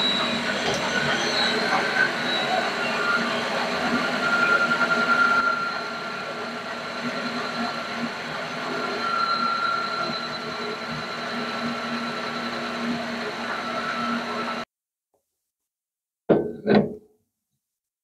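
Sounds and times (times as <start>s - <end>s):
lathe motor whine: 0.0s - 14.6s
lathe tool cutting metal: 0.0s - 14.6s.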